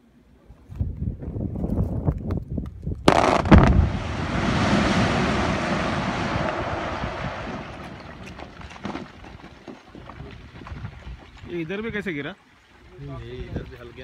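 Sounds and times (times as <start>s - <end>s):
rumble of falling rock: 3.0s - 11.5s
explosive bangs: 3.1s - 9.3s.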